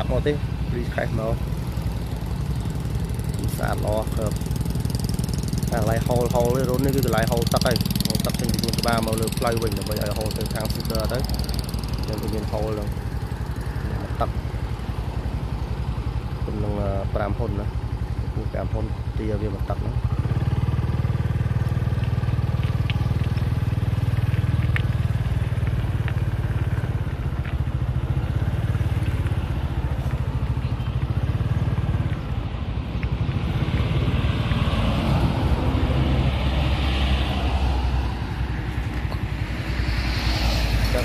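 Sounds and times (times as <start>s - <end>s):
motorbike engine running: 0.0s - 41.0s
road traffic passing: 0.0s - 41.0s.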